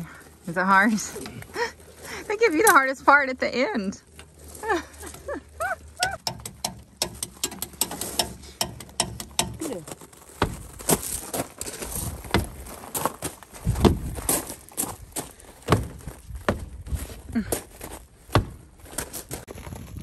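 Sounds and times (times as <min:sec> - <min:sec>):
footsteps on gravel: 0:00.0 - 0:06.0, 0:09.3 - 0:20.0
jack clicking and knocking: 0:06.0 - 0:09.7, 0:10.4 - 0:11.1, 0:12.2 - 0:12.7.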